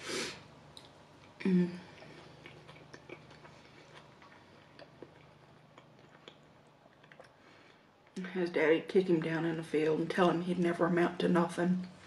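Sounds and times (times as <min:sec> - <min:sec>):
close chewing with mouth clicks: 0:00.7 - 0:08.2
person humming: 0:01.4 - 0:02.0.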